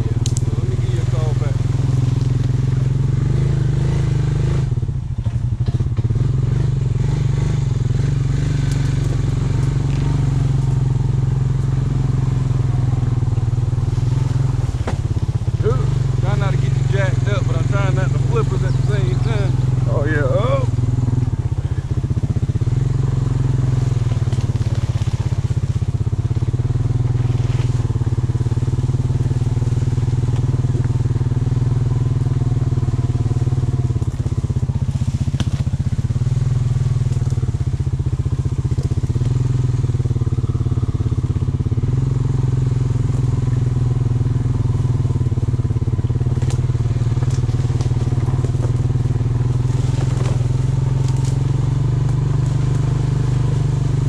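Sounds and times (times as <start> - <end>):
vehicle engine droning: 0.0 - 54.0
light clicks and crackles: 0.2 - 0.5.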